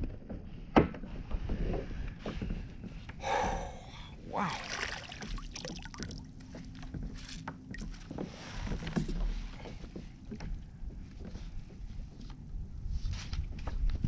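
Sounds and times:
water lapping at kayak hull: 3.4s - 10.0s.

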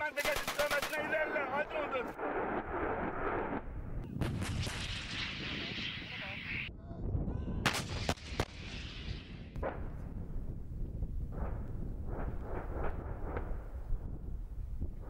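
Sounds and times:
artillery booms: 1.9s - 6.4s, 7.6s - 13.8s
low rumble: 2.1s - 15.0s.

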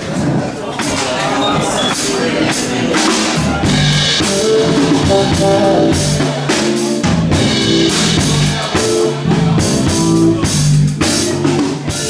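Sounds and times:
drum kit: 0.0s - 12.0s
keyboard: 0.0s - 12.0s
electric bass: 3.4s - 12.0s.

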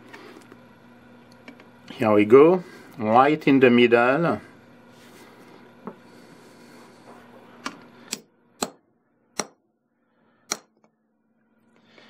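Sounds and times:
hammer tapping metal punch: 8.1s - 8.8s, 9.4s - 9.6s, 10.5s - 10.9s.

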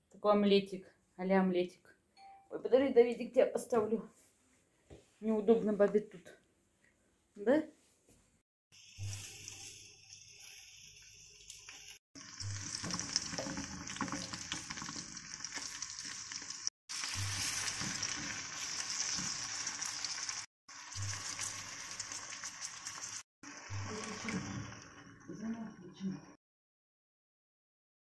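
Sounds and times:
vegetables sizzling in a frying pan: 8.8s - 25.6s.

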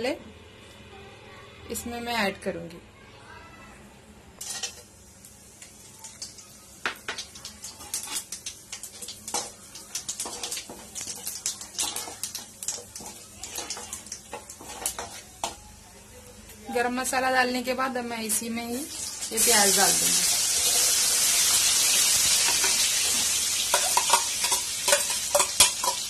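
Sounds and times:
low sizzle: 0.0s - 26.0s
metal spoon stirring: 4.4s - 4.9s, 7.4s - 15.6s, 22.3s - 26.0s
spices popping in hot oil: 4.4s - 15.8s, 18.7s - 26.0s.

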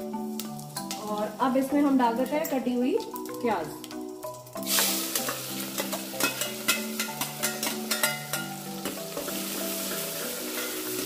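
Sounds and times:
onions sizzling in oil: 0.0s - 11.0s
steel ladle clicking and scraping: 4.8s - 9.3s.

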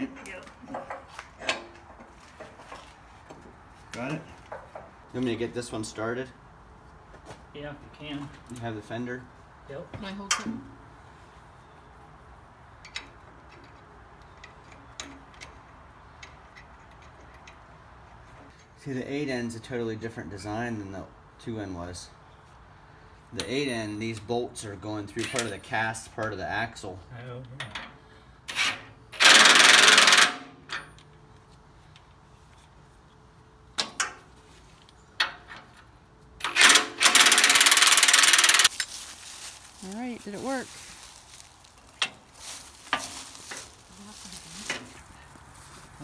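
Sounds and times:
metal clanks of tools: 0.6s - 2.6s, 25.1s - 25.9s
bolts and bracket clicking: 12.8s - 18.6s, 33.8s - 38.9s
impact wrench hammering: 29.2s - 30.5s, 36.4s - 38.7s.

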